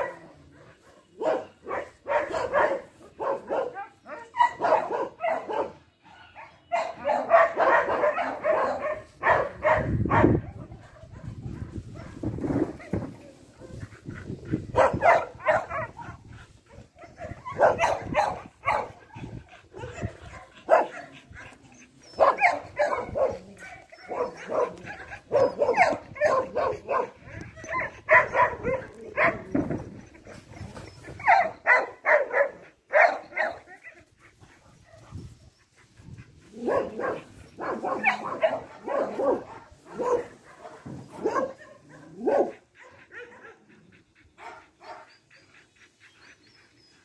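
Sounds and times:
dog barking: 0:00.0 - 0:05.8, 0:06.4 - 0:13.1, 0:14.7 - 0:21.5, 0:22.1 - 0:29.6, 0:31.2 - 0:33.7, 0:36.5 - 0:43.7, 0:44.4 - 0:45.1.

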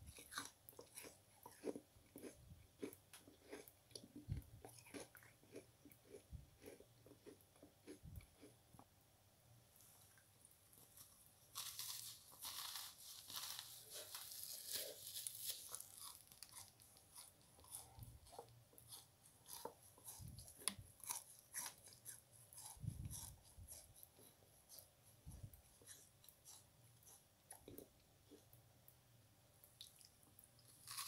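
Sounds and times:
sponge crunching and crackling: 0:10.8 - 0:18.0.

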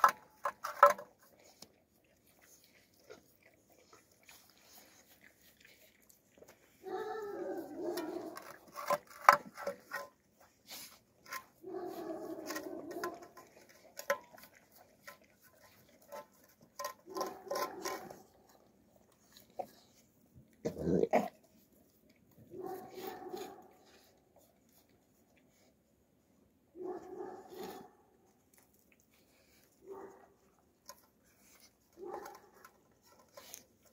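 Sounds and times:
puppies eating and licking: 0:00.0 - 0:33.9
puppy whining: 0:02.5 - 0:08.7
metal bowls clinking and scraping: 0:06.6 - 0:20.0.

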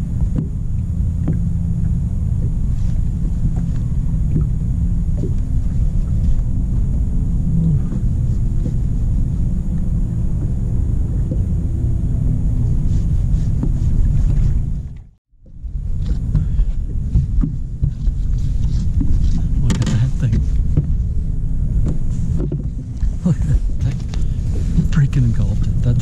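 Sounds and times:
boat motor running: 0:00.0 - 0:26.0.

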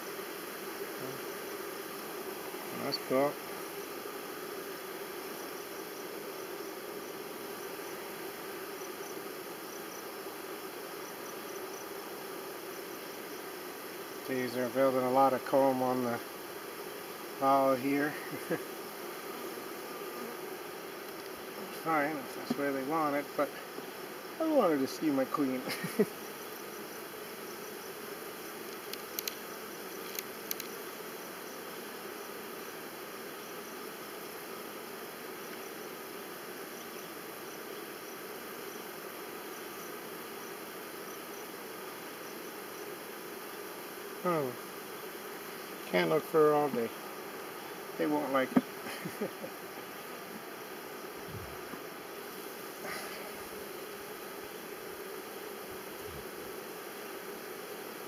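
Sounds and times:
honeybee colony humming: 0:00.0 - 0:58.0
light clicks: 0:28.7 - 0:29.4, 0:30.0 - 0:30.7.

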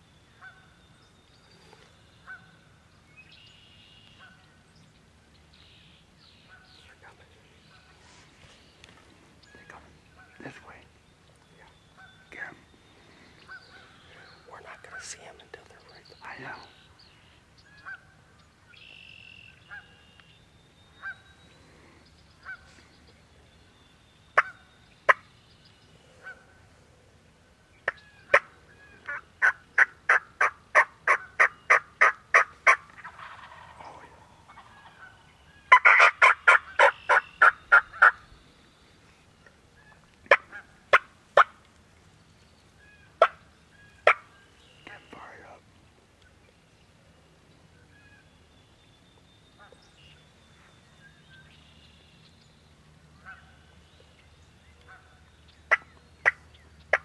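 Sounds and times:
turkey yelping: 0:29.1 - 0:33.8, 0:34.5 - 0:38.2, 0:42.9 - 0:43.4
turkey clucking: 0:29.1 - 0:38.2, 0:55.7 - 0:57.0.

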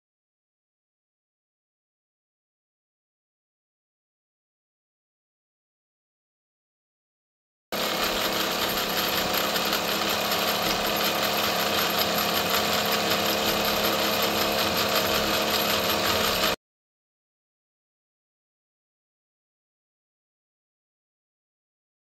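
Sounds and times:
flywheel and gears clatter: 0:07.8 - 0:16.6
steam engine chuffing: 0:07.8 - 0:16.6.

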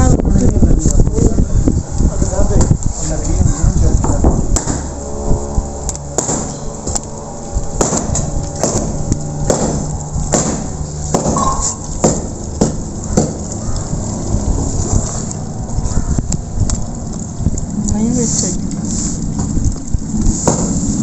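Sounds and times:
steady low rumble: 0:00.0 - 0:21.0.

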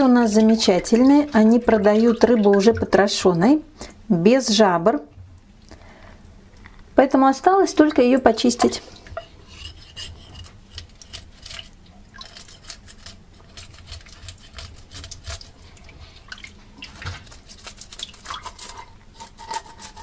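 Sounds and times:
water dripping and splashing: 0:00.0 - 0:03.4, 0:10.7 - 0:18.9
knife scraping fish scales: 0:09.2 - 0:15.6, 0:17.2 - 0:20.0.

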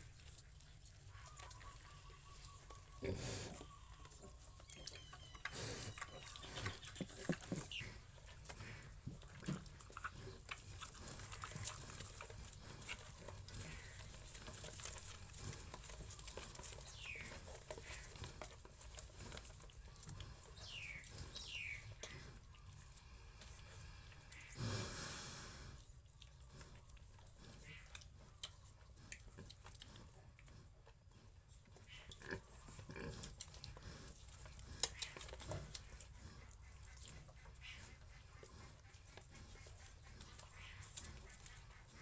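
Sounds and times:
pigs scuffling and clicking: 0:00.0 - 0:24.5, 0:26.0 - 0:42.0
piglets' short high calls: 0:01.1 - 0:07.0.

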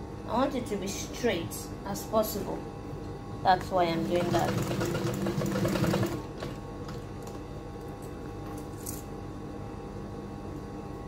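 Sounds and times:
faint steady hum: 0:00.0 - 0:11.0
sewing machine stitching: 0:04.1 - 0:06.6.

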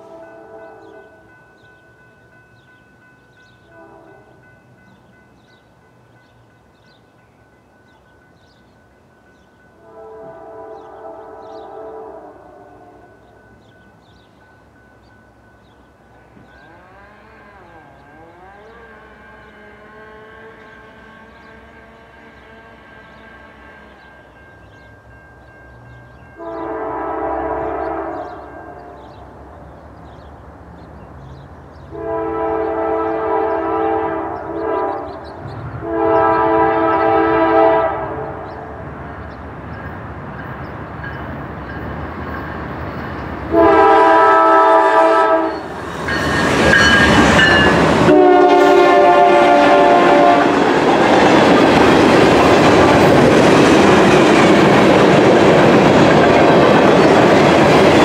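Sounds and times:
locomotive air horn blasts: 0:00.0 - 0:01.2, 0:03.8 - 0:04.4, 0:09.8 - 0:13.1, 0:26.4 - 0:29.0, 0:31.9 - 0:35.2, 0:35.8 - 0:38.8, 0:43.5 - 0:45.8, 0:46.7 - 0:50.7
locomotive engines rushing past: 0:00.0 - 0:58.0.

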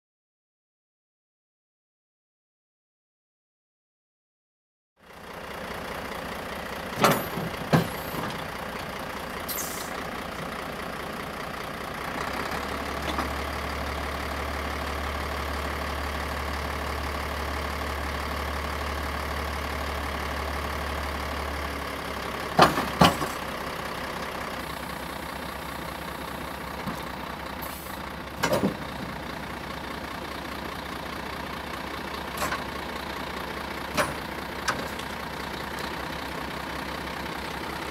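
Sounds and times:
diesel truck engine idling: 0:05.0 - 0:37.9.

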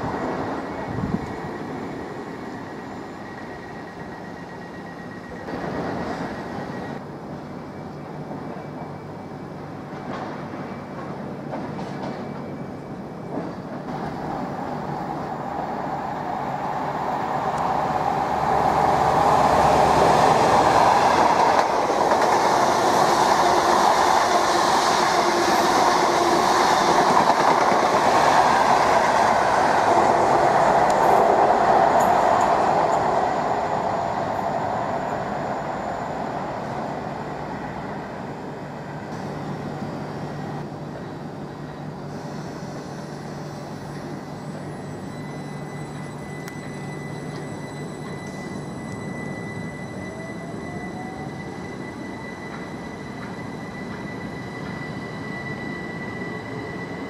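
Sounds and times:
diesel train passing: 0:00.0 - 0:57.0.

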